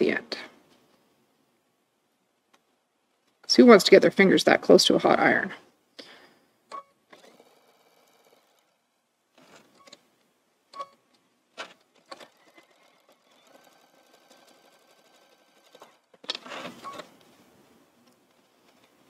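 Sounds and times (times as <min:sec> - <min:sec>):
sewing machine stitching: 0:07.1 - 0:08.8, 0:11.6 - 0:16.8.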